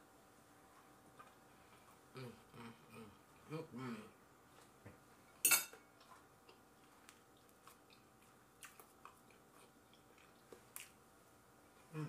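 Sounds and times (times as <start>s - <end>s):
dishes clattering: 5.4s - 5.8s.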